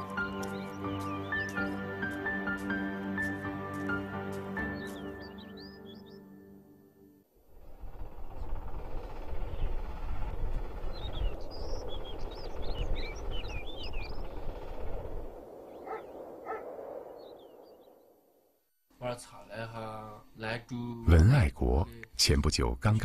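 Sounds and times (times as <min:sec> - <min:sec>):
small birds chirping: 0:00.0 - 0:03.3, 0:04.0 - 0:06.3, 0:08.2 - 0:18.3
low outdoor rumble: 0:07.4 - 0:16.0.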